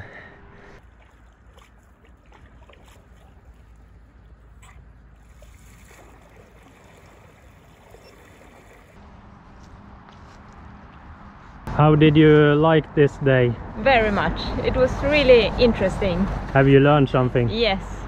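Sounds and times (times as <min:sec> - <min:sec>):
paddle strokes in water: 0:00.8 - 0:09.0.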